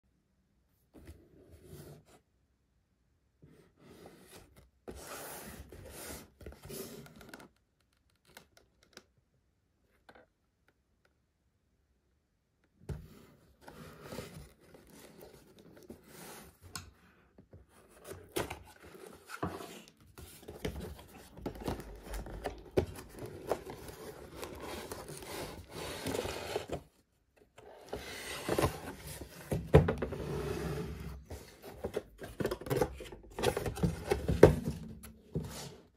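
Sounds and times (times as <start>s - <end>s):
cardboard and paper rustling: 17.4s - 30.2s, 31.2s - 35.9s.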